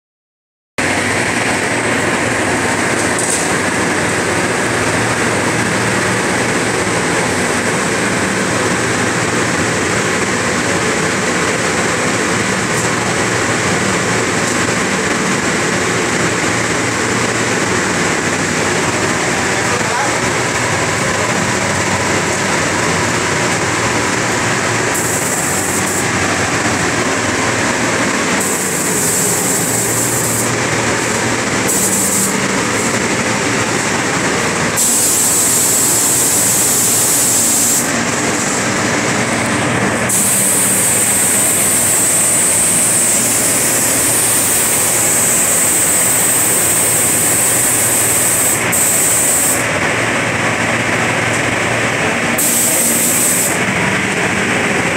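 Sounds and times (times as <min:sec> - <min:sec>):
ventilation rushing: 0:00.8 - 0:54.9
spray gun hissing: 0:24.8 - 0:26.1, 0:28.4 - 0:32.9, 0:34.8 - 0:38.5, 0:40.1 - 0:49.7, 0:52.4 - 0:53.6.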